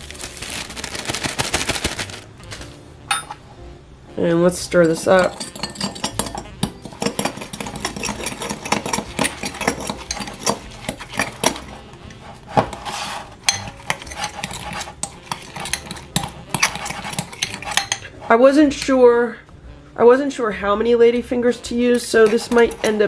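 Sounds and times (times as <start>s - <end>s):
fork clinking and scraping mug: 4.8s - 18.8s, 21.9s - 23.0s.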